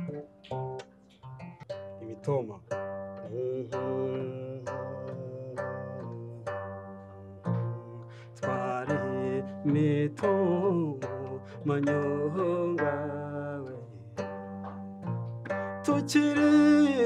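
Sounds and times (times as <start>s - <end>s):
plucked zither: 0.0s - 17.0s
person singing: 3.2s - 14.8s, 15.5s - 17.0s.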